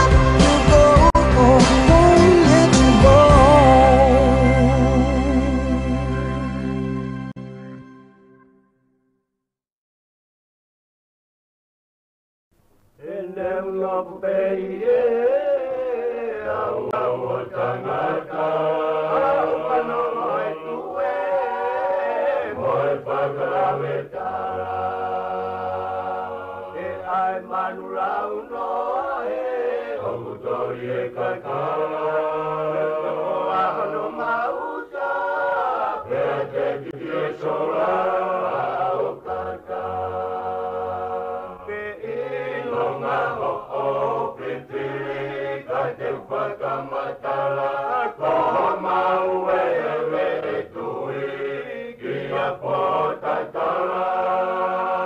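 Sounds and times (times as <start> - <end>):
voices singing in harmony: 0.0 - 6.4, 13.0 - 55.0
low bass line: 0.0 - 6.8.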